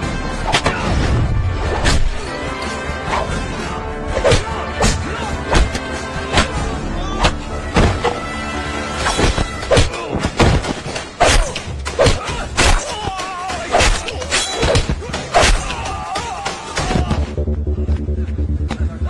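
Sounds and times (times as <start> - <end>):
background film music: 0.0 - 19.0
punch and kick impacts: 7.2 - 8.2.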